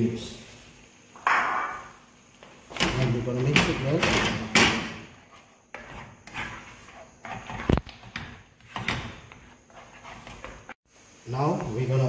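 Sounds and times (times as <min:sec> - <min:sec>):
spoon scraping a frying pan: 0:05.2 - 0:10.7.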